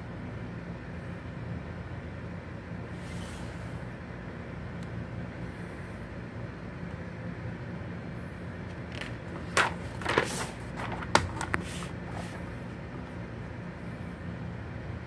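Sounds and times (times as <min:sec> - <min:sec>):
low background hum: 0:00.0 - 0:15.0
paper rustling: 0:08.7 - 0:12.6
magazine page snapping: 0:08.9 - 0:12.5.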